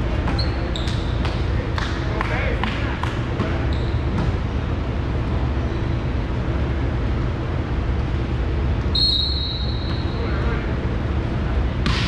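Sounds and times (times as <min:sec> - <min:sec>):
gymnasium background rumble: 0:00.0 - 0:12.0
referee's whistle: 0:08.9 - 0:10.2.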